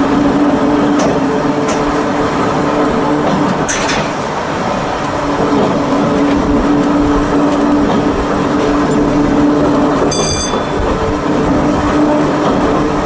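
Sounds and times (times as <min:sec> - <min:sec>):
electric railway car humming: 0:00.0 - 0:13.0
wheel-on-rail rumble: 0:00.0 - 0:13.0
high-pitched wheel squeal: 0:10.1 - 0:11.2.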